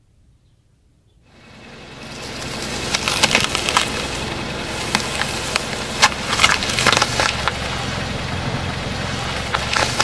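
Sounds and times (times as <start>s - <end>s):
car engine hum: 1.2s - 10.0s
apple crunching under car tyre: 2.1s - 10.0s.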